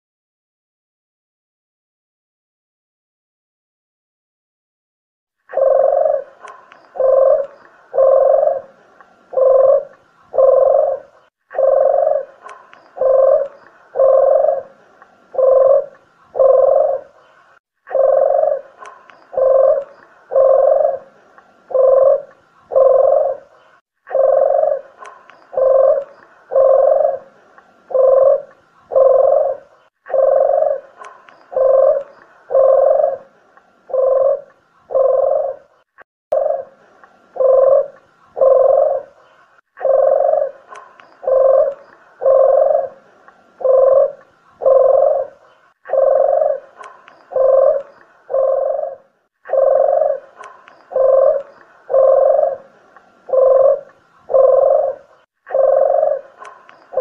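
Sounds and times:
dove cooing: 5.5 - 57.0.

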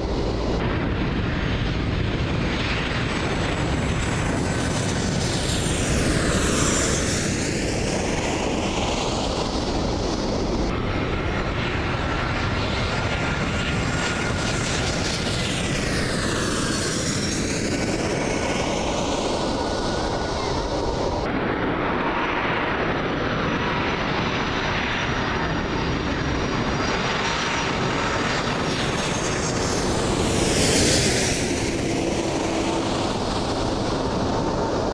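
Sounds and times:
jet airliner engine roar: 0.0 - 34.9
jet engine whine: 0.0 - 34.9.

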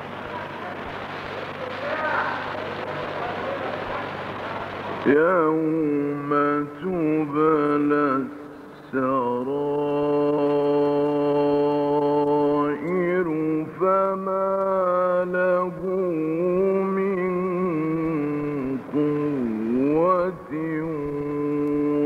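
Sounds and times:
man reciting melodically: 5.0 - 22.0.

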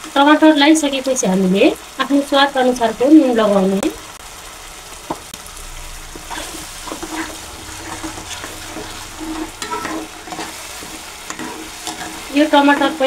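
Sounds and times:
tomato paste sizzling in a pan: 0.0 - 13.0
spatula scraping metal pan: 6.0 - 13.0.

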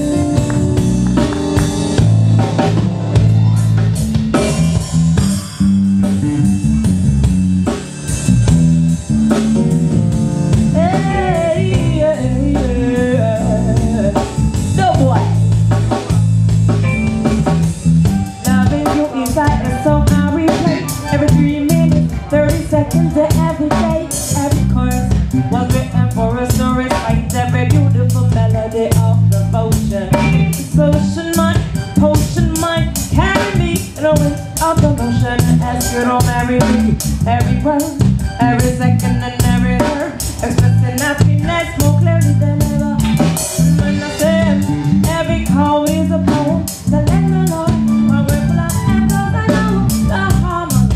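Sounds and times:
deep bass notes: 0.0 - 50.9
drum kit beat: 0.0 - 50.9
reggae band playing: 0.0 - 50.9
woman singing: 10.6 - 15.4, 18.4 - 50.9.

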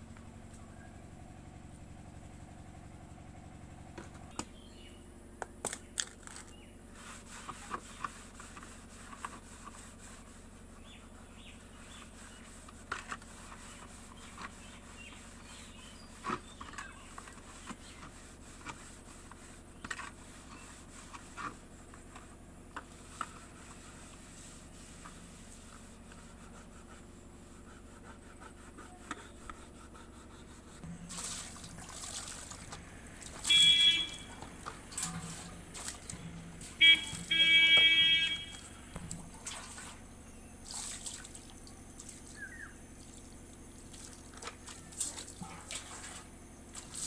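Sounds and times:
hands scrubbing a metal bowl: 6.9 - 30.4
low hum: 20.5 - 46.9.

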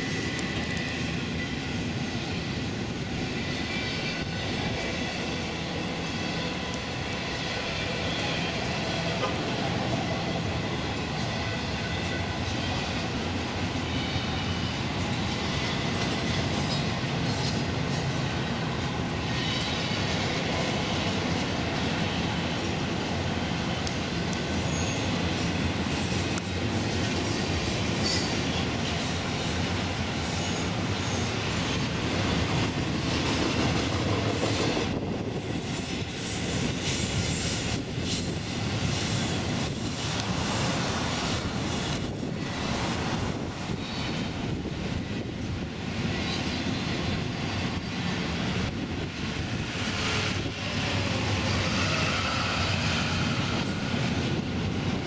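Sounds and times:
freight train wheels rumbling on rails: 0.0 - 55.0.

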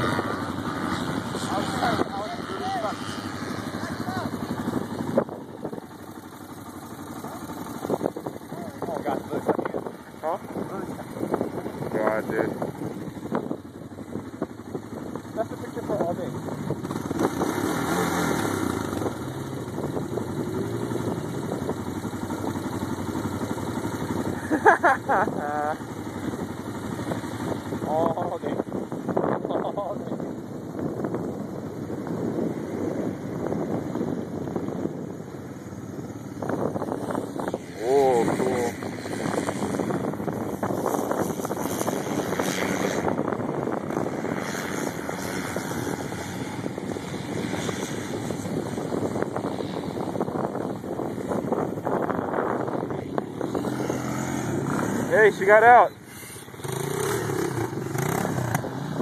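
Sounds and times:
atv engine idling: 0.0 - 59.0.

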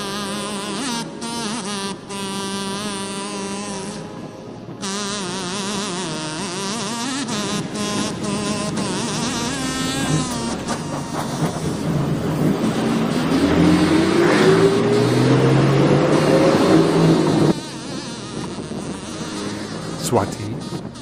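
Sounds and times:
vehicle engine accelerating: 7.9 - 17.6.

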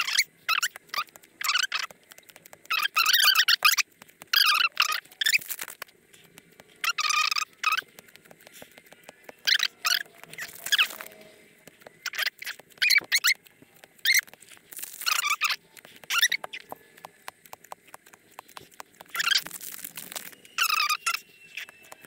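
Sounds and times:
light ticks: 0.5 - 22.0
cards scraping card on card: 0.6 - 20.5.

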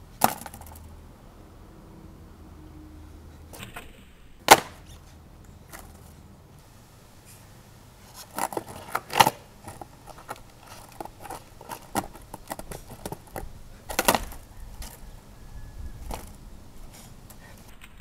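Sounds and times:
skateboard knocking on asphalt: 4.4 - 4.8, 8.2 - 15.2, 16.0 - 16.4.

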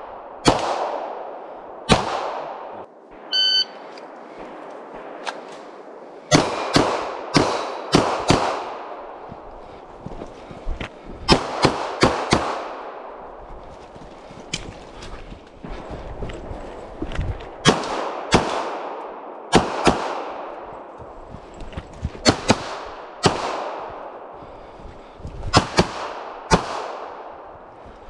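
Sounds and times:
gunshot echo through forest: 0.0 - 9.4, 11.3 - 13.4, 17.6 - 20.8, 22.2 - 24.7, 25.5 - 27.5
pistol shots: 0.4 - 2.8, 6.3 - 9.1, 11.3 - 13.1, 17.6 - 20.6, 22.2 - 24.2, 25.5 - 27.3.

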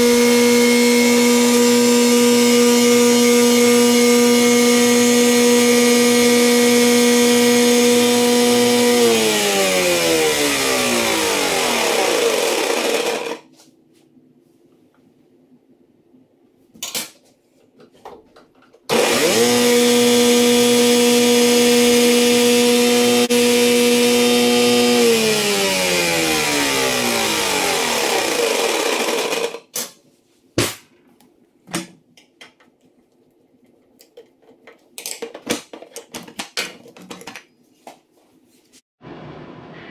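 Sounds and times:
table saw spinning down: 0.0 - 13.4, 18.9 - 29.6, 39.0 - 39.9
table saw running: 0.0 - 13.5, 18.9 - 29.7.

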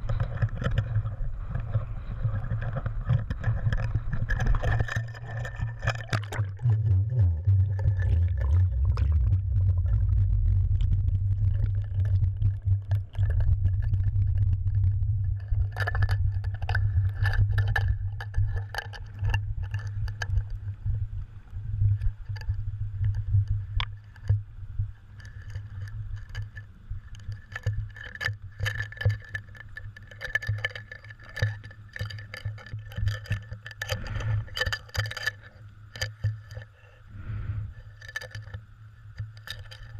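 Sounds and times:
water rushing underwater: 0.0 - 21.2.

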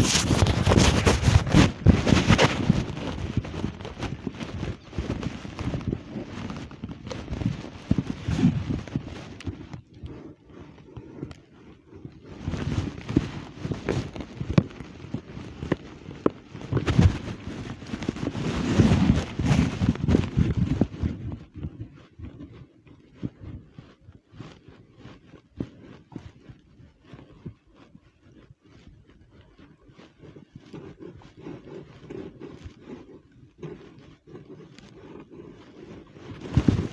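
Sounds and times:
footsteps: 0.0 - 11.4.

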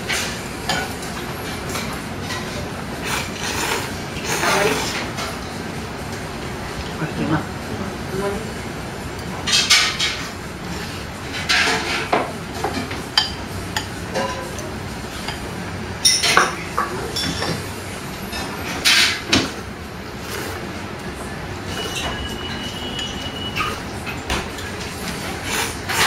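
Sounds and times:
dishes clinking: 0.1 - 5.4, 9.4 - 10.4, 11.3 - 17.7, 21.6 - 26.0.

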